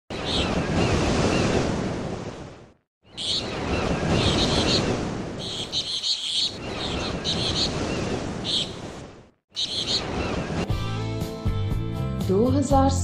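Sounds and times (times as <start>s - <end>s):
surf washing: 0.1s - 10.8s
small birds chirping: 3.0s - 8.8s, 9.5s - 10.5s.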